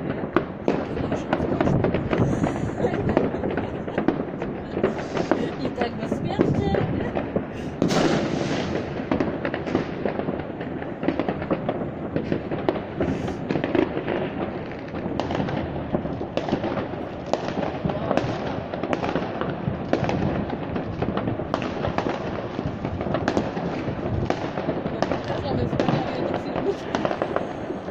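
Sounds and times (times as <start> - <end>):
fireworks and firecrackers crackling: 0.0 - 27.9.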